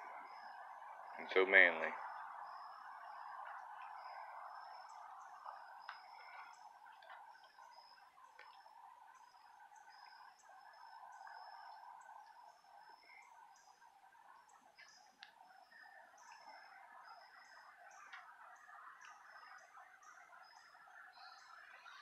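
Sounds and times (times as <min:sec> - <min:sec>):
trilling hum of night insects: 0:00.0 - 0:22.0.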